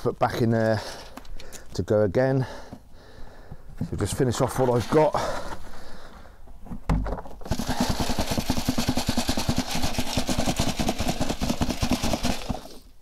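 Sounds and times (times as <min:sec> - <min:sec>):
charcoal rattling on wire sieve: 0:07.5 - 0:12.8.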